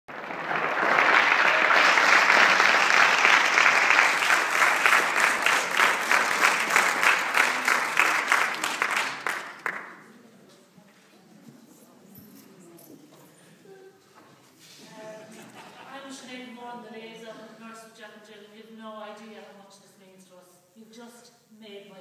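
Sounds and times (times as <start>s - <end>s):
audience applauding: 0.1s - 10.1s.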